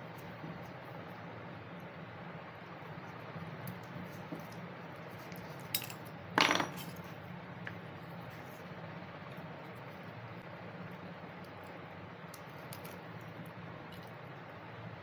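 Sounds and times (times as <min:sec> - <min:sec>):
steady low hum: 0:00.0 - 0:15.0
small metal parts clinking: 0:05.6 - 0:07.0.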